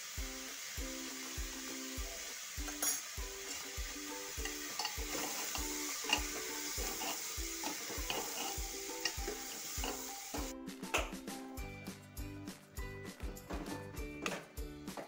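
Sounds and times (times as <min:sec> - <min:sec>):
food sizzling: 0:00.0 - 0:11.7
background music with beat: 0:00.1 - 0:15.0.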